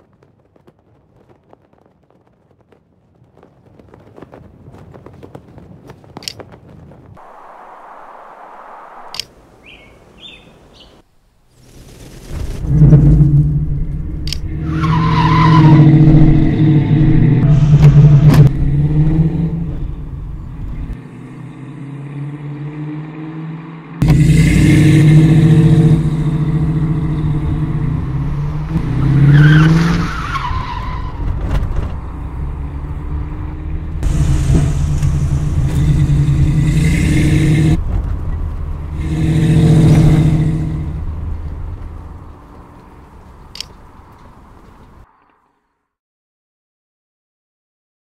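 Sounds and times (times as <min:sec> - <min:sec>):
car engine revving: 0:12.6 - 0:43.5
tyre squeal: 0:14.5 - 0:16.7.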